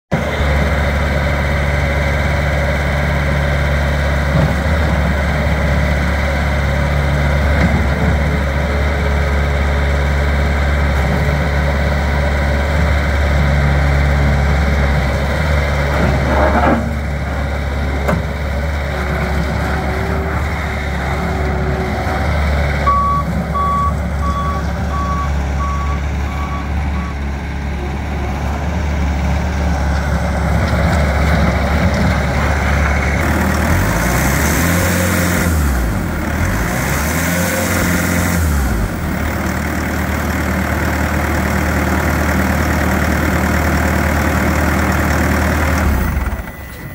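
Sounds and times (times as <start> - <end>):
diesel engine running: 0.1 - 46.9
engine revving: 10.5 - 39.5
backup alarm beeping: 22.9 - 27.2.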